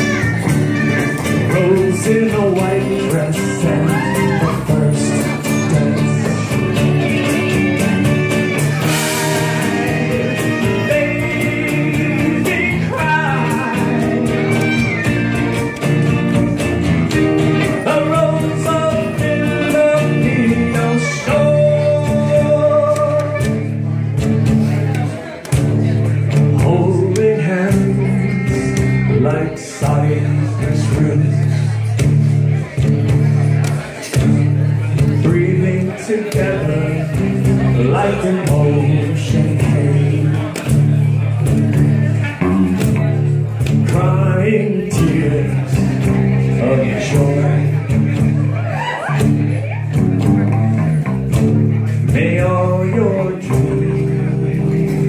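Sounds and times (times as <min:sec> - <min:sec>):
clarinet: 0:00.0 - 0:02.1
man singing: 0:00.0 - 0:49.6, 0:50.2 - 0:55.0
electric bass: 0:00.0 - 0:55.0
strummed acoustic guitar: 0:00.0 - 0:55.0.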